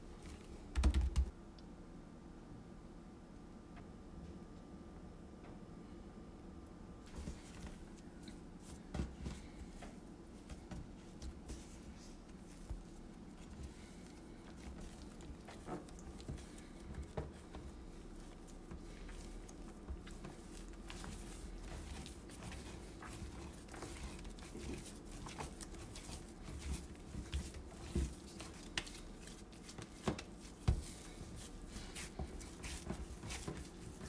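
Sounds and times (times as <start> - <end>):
hands kneading dough: 7.0 - 34.0.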